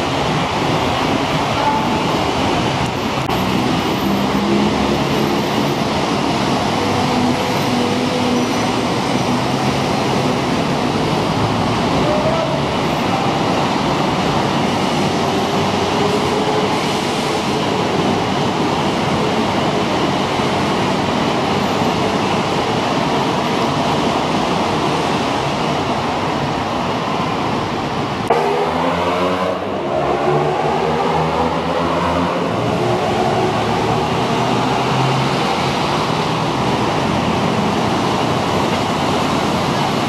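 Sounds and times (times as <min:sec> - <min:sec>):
heavy city traffic roar: 0:00.0 - 0:40.0
engines rising in pitch: 0:28.3 - 0:35.8.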